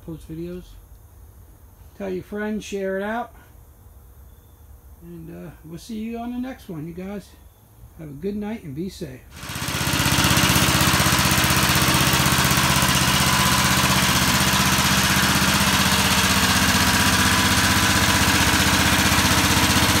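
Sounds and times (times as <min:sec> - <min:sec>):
lawnmower engine running: 0:09.3 - 0:20.0.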